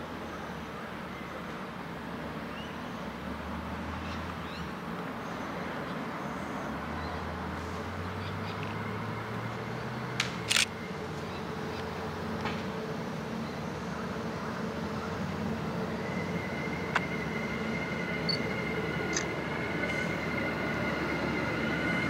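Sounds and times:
distant diesel train engine hum: 0.0 - 22.0.

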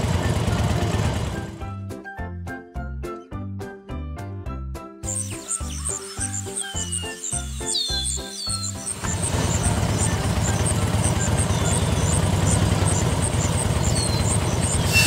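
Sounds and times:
small engine running: 0.0 - 1.7, 5.1 - 15.0
background music: 0.0 - 15.0.

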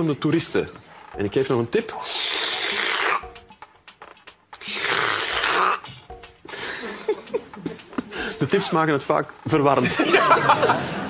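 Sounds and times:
man imitating slurping: 1.9 - 3.4, 4.6 - 6.1.

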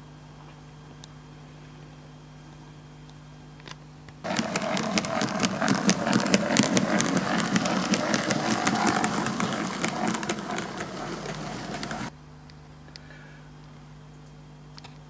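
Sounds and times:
model train running on track: 4.2 - 12.1
wheels clicking: 4.2 - 12.1.

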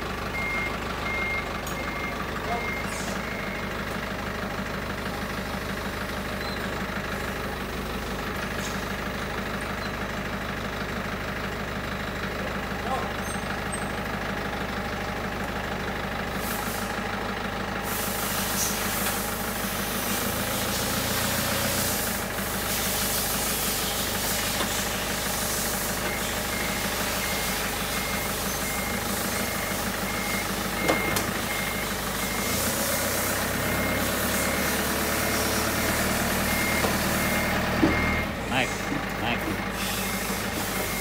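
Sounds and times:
engine running: 0.0 - 41.0
high-pitched reversing beep: 0.3 - 3.8, 26.0 - 32.8, 33.6 - 41.0.

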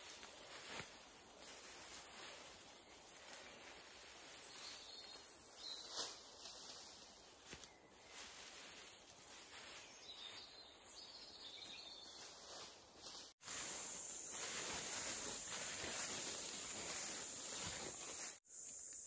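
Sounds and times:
high insect drone: 12.5 - 19.0.

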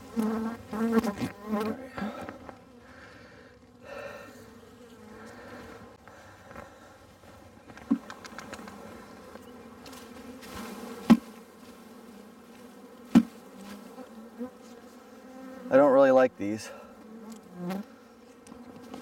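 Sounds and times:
bees buzzing: 0.0 - 19.0
cage knocking against hive: 11.0 - 11.3, 13.1 - 13.4.

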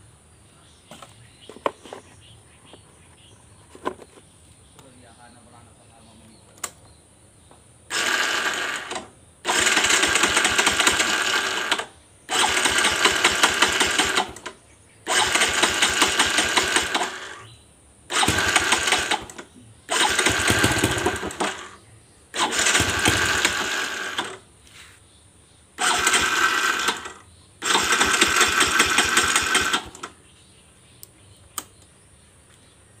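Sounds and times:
motorcycle starter rattling: 7.9 - 17.5, 18.1 - 24.5, 25.8 - 30.2.

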